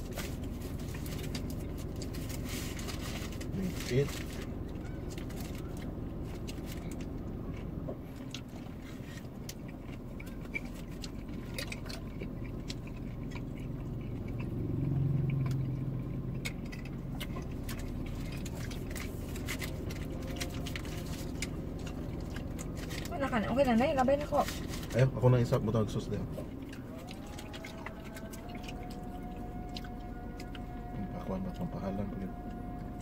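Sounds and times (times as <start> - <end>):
paper wrapper crinkling: 0.0 - 7.1
person chewing food: 0.0 - 23.1, 24.1 - 31.7
deep rumble: 0.0 - 33.0
low car cabin hum: 0.0 - 33.0.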